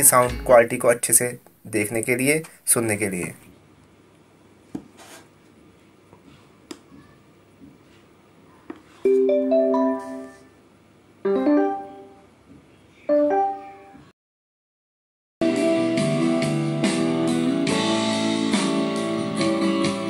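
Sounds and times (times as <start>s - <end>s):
piano chords through speaker: 0.0s - 0.7s
button clicks: 0.3s - 0.6s.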